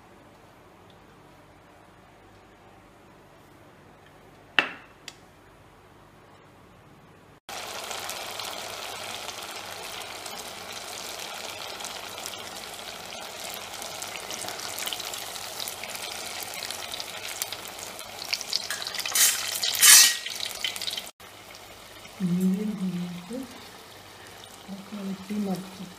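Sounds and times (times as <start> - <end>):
dough deep-frying in oil: 7.5 - 25.9.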